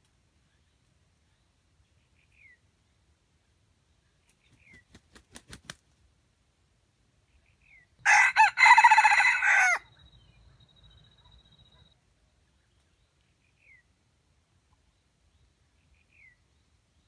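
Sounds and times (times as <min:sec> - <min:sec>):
rooster wings beating: 0:04.5 - 0:05.9
rooster crowing: 0:08.0 - 0:09.9.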